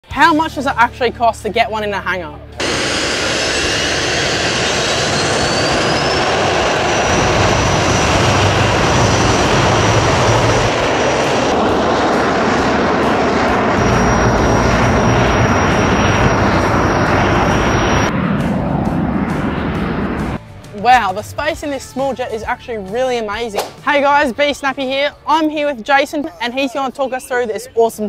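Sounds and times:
jet engine roar: 2.6 - 20.4
high turbine whine: 2.6 - 20.6.

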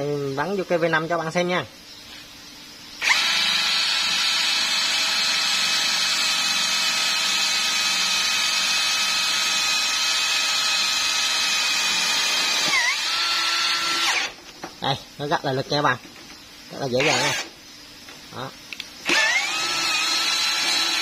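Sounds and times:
cordless drill motor whining: 3.0 - 14.4, 17.0 - 17.5, 19.0 - 21.0.

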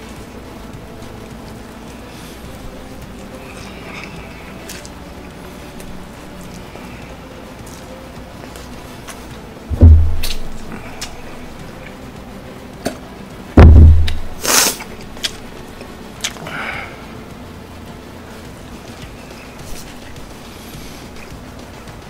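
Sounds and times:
eating noises: 0.0 - 9.6, 10.2 - 12.1, 14.1 - 17.3, 18.4 - 22.0
faint background music: 0.0 - 22.0
heavy booming thump: 9.7 - 10.8, 13.6 - 14.4
person slurping noodles: 14.4 - 14.8.

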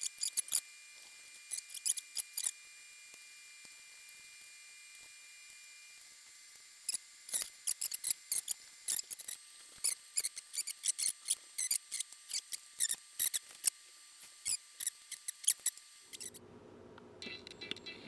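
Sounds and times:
low steady hum: 14.0 - 18.0.

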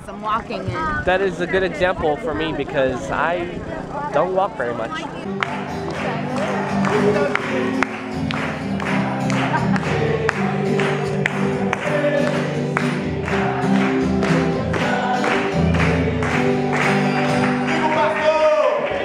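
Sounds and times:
people singing: 0.5 - 19.0
people clapping along: 4.6 - 19.0
gospel worship song with band: 5.2 - 19.0.

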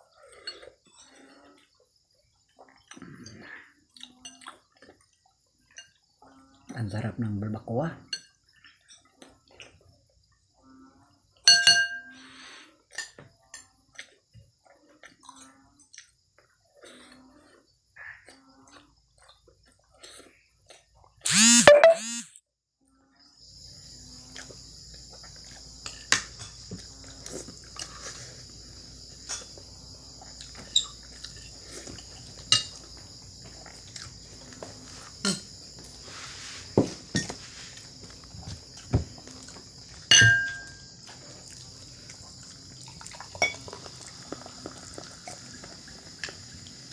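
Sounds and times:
tableware clink: 11.5 - 12.2, 32.5 - 32.8, 40.1 - 40.9
crickets chirring: 23.1 - 46.9
person eating by hand: 24.3 - 36.0, 41.0 - 46.9.

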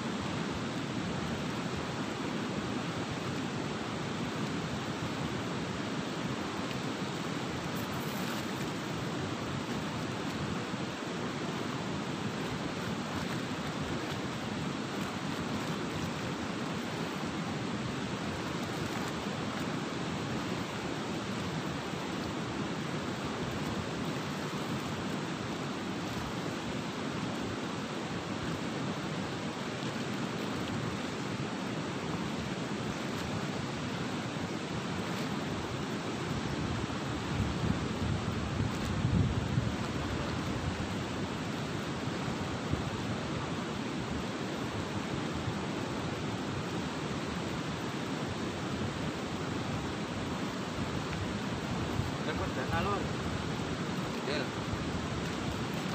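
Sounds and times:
turbulent river water rushing: 0.0 - 55.9.

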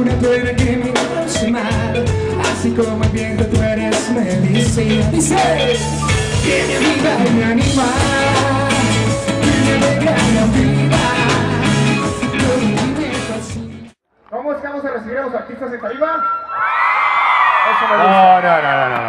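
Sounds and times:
man singing: 0.0 - 13.9
live band playing: 0.0 - 14.0.

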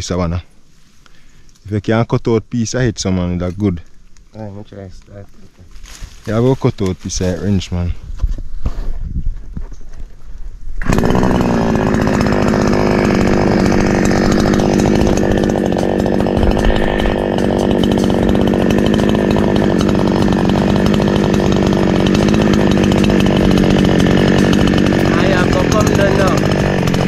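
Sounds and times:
chainsaw running: 10.8 - 27.0.

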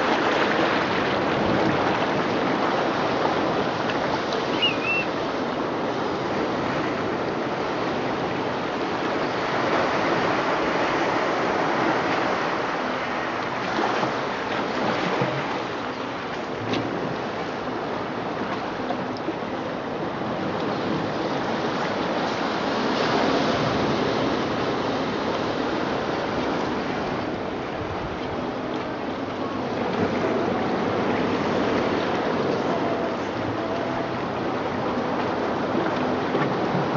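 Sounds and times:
ocean waves through speakers: 0.0 - 36.9.

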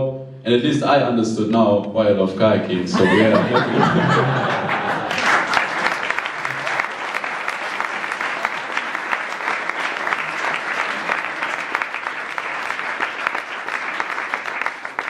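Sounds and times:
audience applauding: 3.0 - 15.0.

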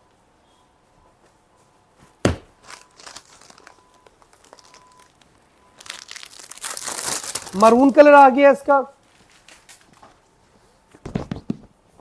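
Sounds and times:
sharp knock: 2.2 - 2.5
plastic wrapper crinkling: 2.6 - 8.3.

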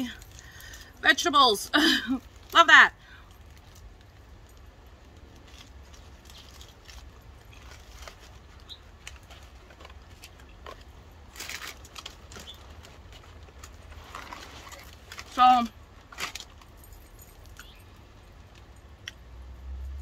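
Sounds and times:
paper wrappers crinkling: 3.4 - 17.3.

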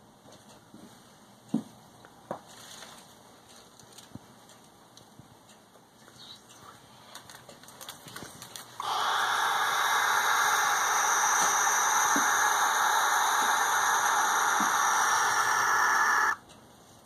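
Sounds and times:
owl screeching: 8.8 - 16.4.

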